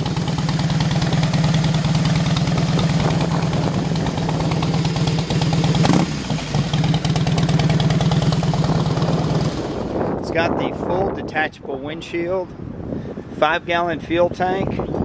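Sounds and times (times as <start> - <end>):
motorcycle engine idling: 0.0 - 10.2.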